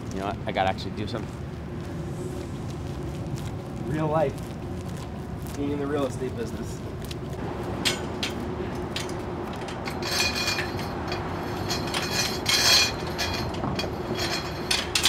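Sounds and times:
steady hum: 0:00.0 - 0:15.0
chain-link gate rattling: 0:07.8 - 0:15.0.

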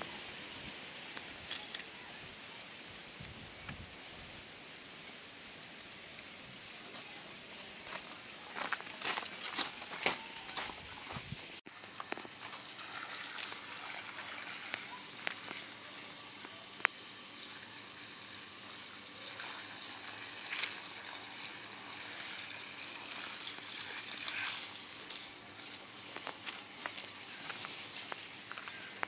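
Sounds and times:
hose water splashing on soil: 0:05.9 - 0:29.0.

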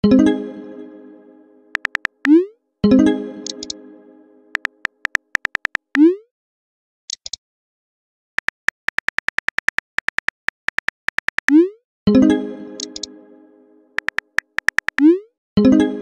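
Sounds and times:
phone keyboard key clicks: 0:01.8 - 0:02.3, 0:04.6 - 0:05.9, 0:08.4 - 0:11.5, 0:12.9 - 0:13.1, 0:14.0 - 0:15.0.

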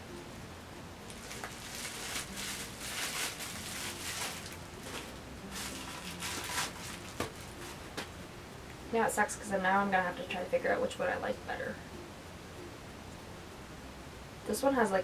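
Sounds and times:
plastic wrap crinkling: 0:01.1 - 0:08.0.

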